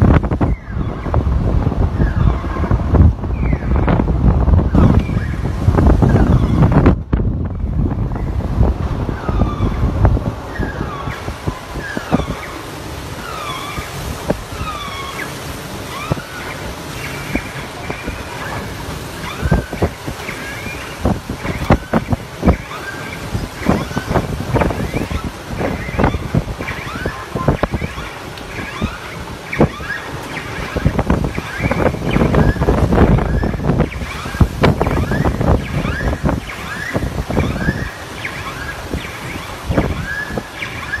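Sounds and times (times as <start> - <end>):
floodwater surging and sloshing: 0.0 - 41.0
wind on microphone: 0.0 - 41.0
high sliding squeaks: 9.1 - 41.0.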